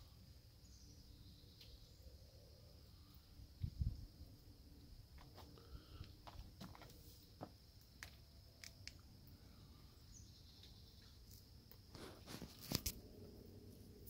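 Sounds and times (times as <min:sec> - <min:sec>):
brief rustle: 0:11.9 - 0:13.0.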